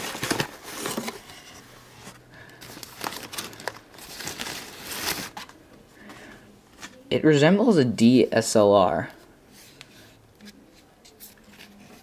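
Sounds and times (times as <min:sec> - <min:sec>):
packing paper crinkling: 0:00.0 - 0:01.3, 0:02.0 - 0:05.6.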